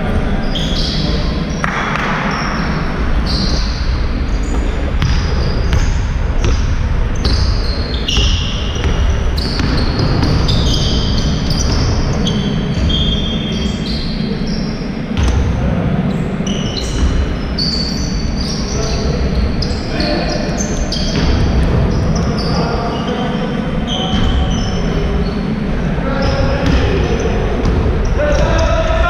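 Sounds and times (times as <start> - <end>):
low hall rumble: 0.0 - 29.0
sneakers squeaking on court: 0.4 - 25.5
basketball bouncing: 3.3 - 13.0, 15.2 - 15.6, 16.8 - 17.4, 21.0 - 22.5, 27.6 - 28.6.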